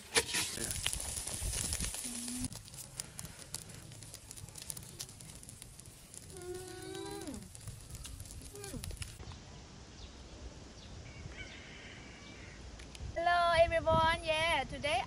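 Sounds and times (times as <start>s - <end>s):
hands squishing wet meat: 0.7s - 9.2s.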